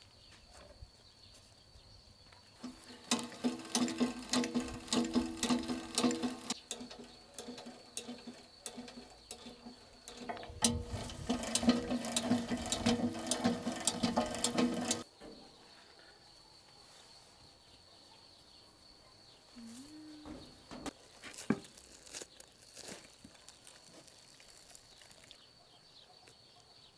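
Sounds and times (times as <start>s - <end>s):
chain rattling over sprocket: 2.6s - 15.1s.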